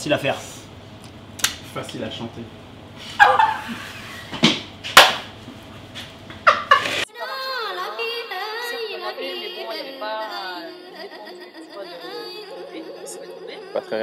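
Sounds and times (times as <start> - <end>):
music with singing voice: 7.1 - 14.0.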